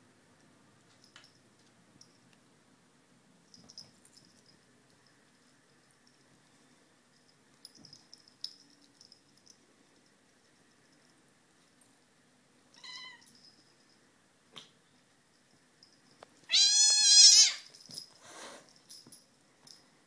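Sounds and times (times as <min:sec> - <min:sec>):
cat mewing: 0:16.5 - 0:17.6
cat yowling: 0:16.5 - 0:17.7.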